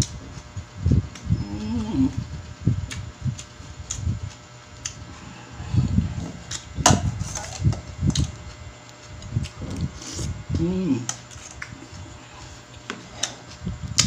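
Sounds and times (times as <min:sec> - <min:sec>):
person chewing: 0:02.8 - 0:14.0.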